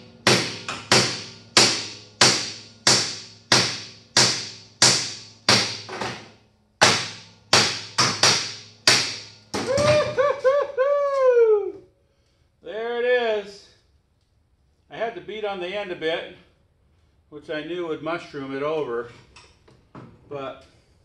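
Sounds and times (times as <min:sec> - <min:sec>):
hammer striking steel: 0:00.2 - 0:10.0.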